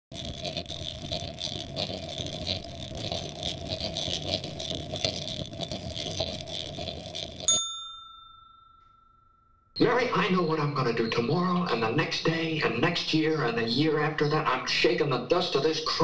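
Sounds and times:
gears clicking and rattling: 0.1s - 7.5s.

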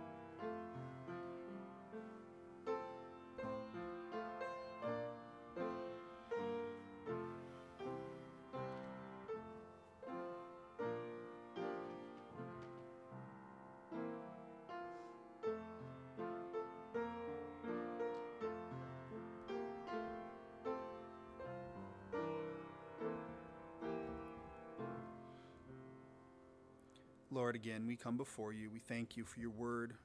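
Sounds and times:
gentle slow piano piece: 0.0s - 27.9s.

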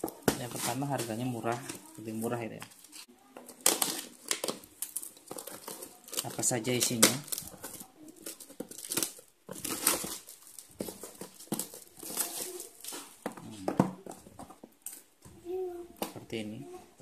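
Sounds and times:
plastic wrap crinkling and tearing: 0.0s - 15.0s.

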